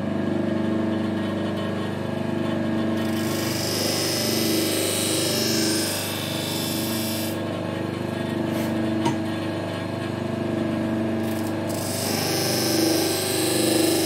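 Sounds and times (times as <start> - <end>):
bench grinder running: 0.7 - 14.0
blade hissing on grinding wheel: 3.1 - 7.4, 11.4 - 14.0.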